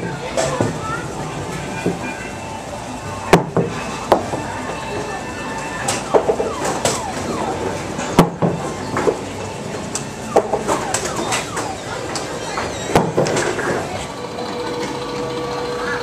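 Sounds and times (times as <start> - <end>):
background game noise: 0.0 - 16.0
game machine chirps and beeps: 5.3 - 7.8, 10.2 - 12.9.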